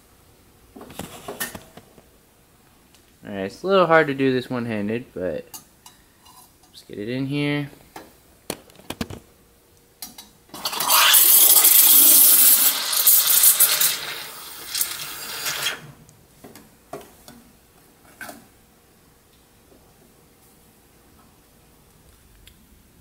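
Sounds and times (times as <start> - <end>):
steam wand hissing: 10.6 - 15.9.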